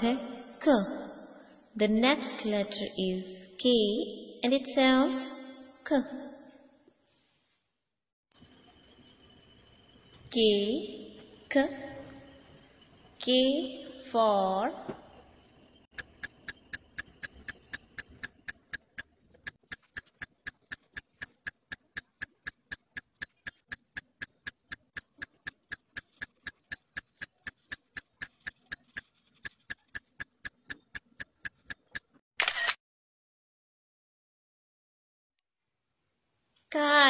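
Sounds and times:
sharp mechanical clicking: 15.9 - 32.8.

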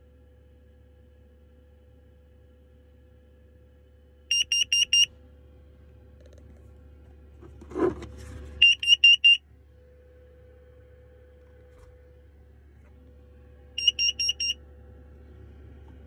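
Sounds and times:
carbon monoxide alarm beeps: 4.3 - 5.1, 8.6 - 9.4, 13.8 - 14.6.

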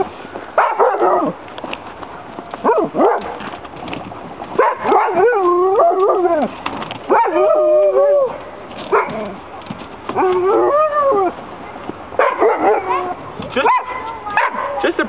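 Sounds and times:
dog whining and howling: 4.6 - 9.4, 10.1 - 11.4.

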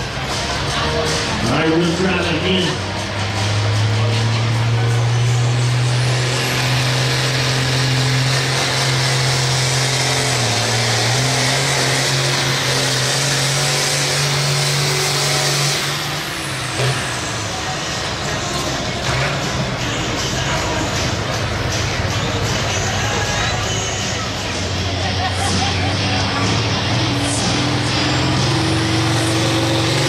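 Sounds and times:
tractor diesel engine droning: 0.0 - 30.0.

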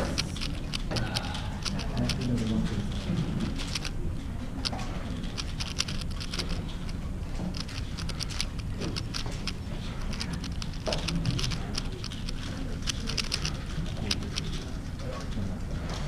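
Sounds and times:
plastic puzzle cube clicking: 3.4 - 3.9, 5.2 - 6.6, 7.6 - 14.5.

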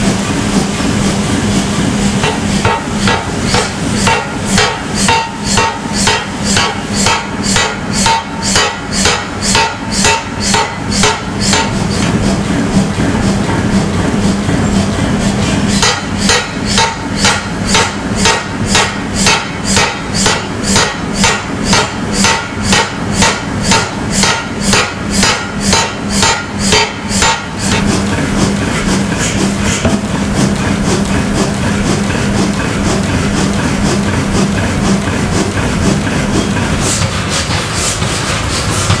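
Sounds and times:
power hammer striking steel: 2.2 - 12.2, 15.6 - 33.0.

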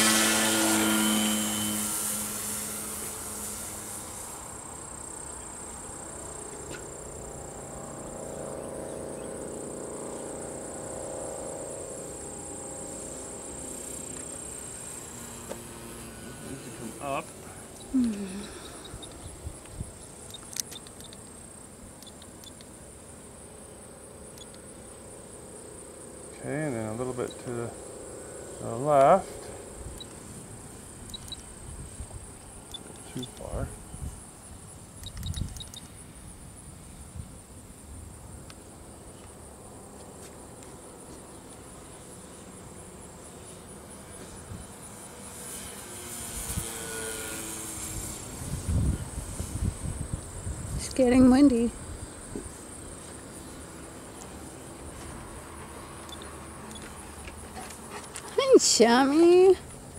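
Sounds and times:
model plane motor whining: 0.0 - 5.4, 7.4 - 21.2, 41.6 - 51.6
insects trilling chorus: 0.0 - 59.9
sharp click: 35.0 - 35.9.

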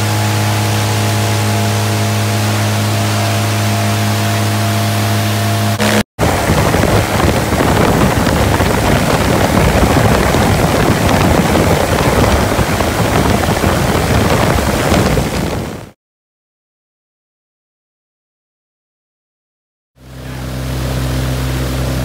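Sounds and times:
aircraft engine hum: 0.0 - 16.0, 20.0 - 22.0
propeller wash wind buffeting: 0.0 - 16.0.

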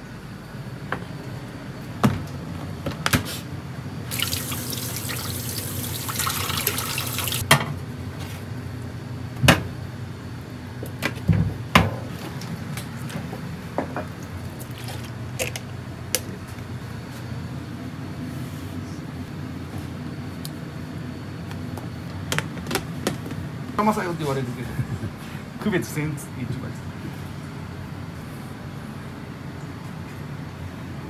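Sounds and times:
steady low hum: 0.0 - 31.0
tap water running into sink: 4.1 - 7.4.

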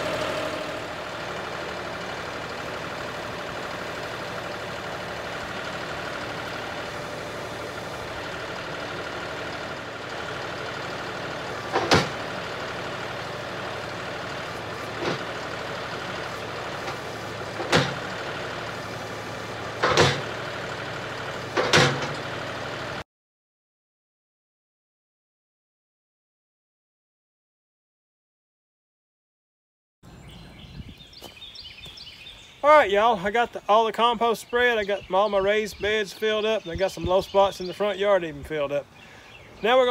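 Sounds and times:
loader dumping compost: 0.0 - 23.0
tractor diesel engine running: 0.0 - 23.0, 30.1 - 39.9.

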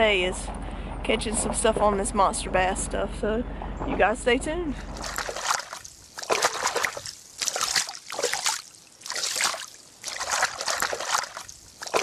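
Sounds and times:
water splashing against boat hull: 4.9 - 12.0.

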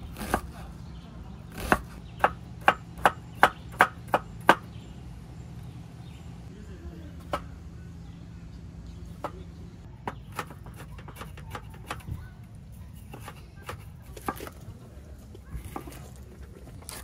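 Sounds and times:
knife chopping on wooden board: 0.0 - 0.5, 1.5 - 4.7, 10.0 - 12.0, 13.1 - 14.6
low steady hum: 0.0 - 17.0.

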